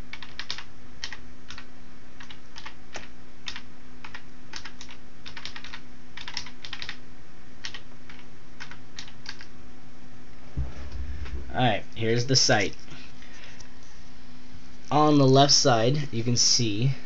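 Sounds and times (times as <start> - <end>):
faint low hum: 0.0 - 17.0
computer keyboard typing: 0.1 - 7.0, 7.6 - 9.5.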